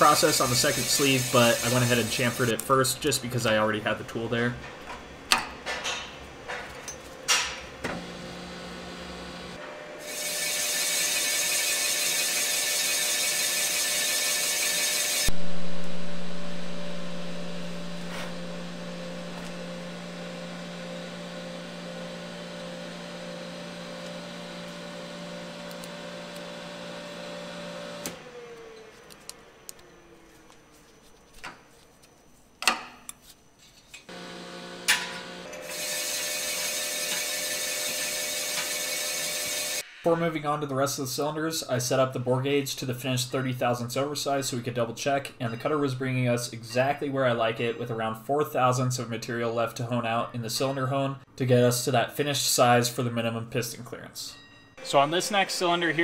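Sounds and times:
loud hissing scrape: 0:00.0 - 0:02.5
spindle winding down: 0:00.0 - 0:02.6, 0:10.0 - 0:30.6, 0:34.1 - 0:40.2, 0:54.8 - 0:56.0
boring bar humming: 0:00.0 - 0:31.8.

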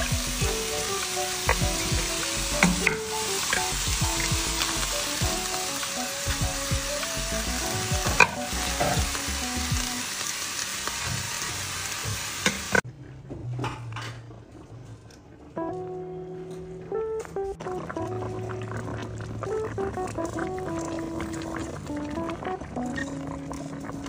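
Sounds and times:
meat sizzling in a frying pan: 0:00.0 - 0:12.8.

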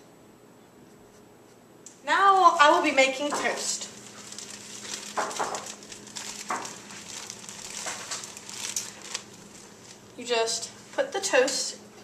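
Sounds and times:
plastic bread bag crinkling: 0:02.4 - 0:11.0.

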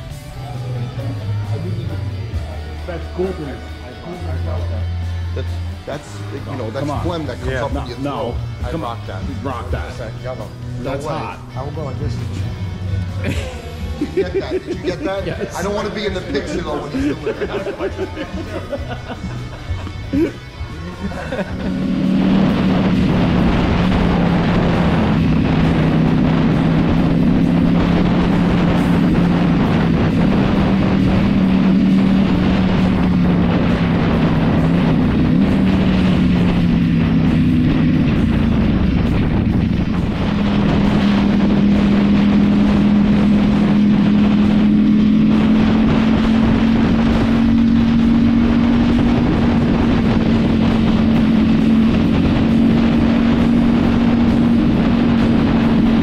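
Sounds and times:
motorcycle engine cruising: 0:00.0 - 0:56.0
wind rushing over microphone: 0:21.6 - 0:56.0.

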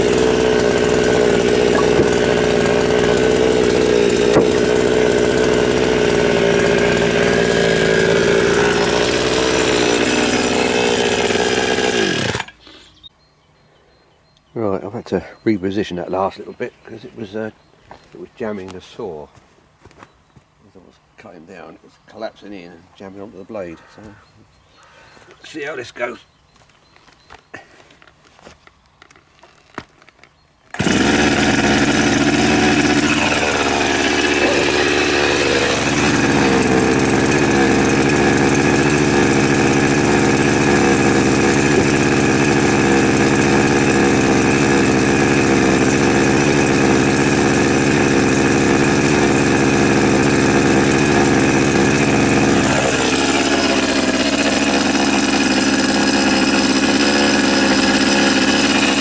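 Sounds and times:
chainsaw idling: 0:00.0 - 0:12.8, 0:30.7 - 0:59.0.

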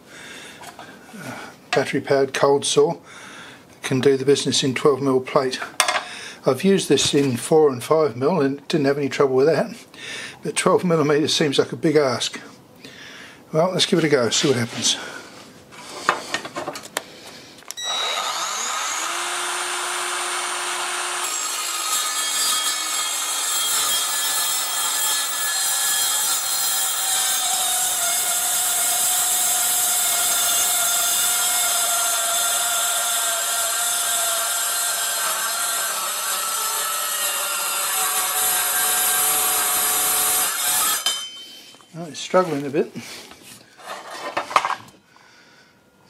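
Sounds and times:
saw motor spinning up: 0:17.8 - 0:21.6
saw blade cutting steel: 0:17.8 - 0:41.9.

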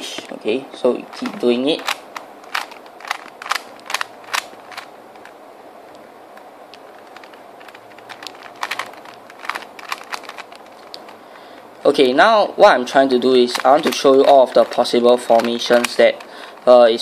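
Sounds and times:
puzzle cube clicking: 0:01.1 - 0:11.2, 0:13.3 - 0:16.7.

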